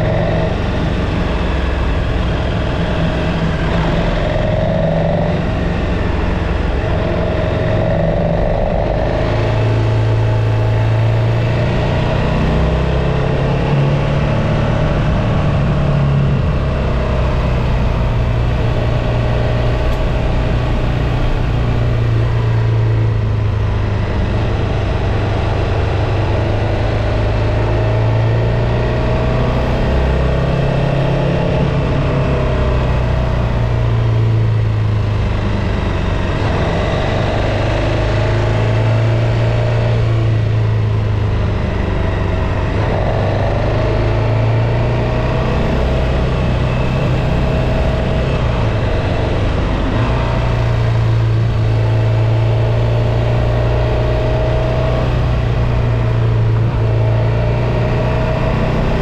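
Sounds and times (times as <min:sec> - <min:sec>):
constant rushing noise: 0:00.0 - 0:59.0
motorcycle engine cruising: 0:00.0 - 0:59.0.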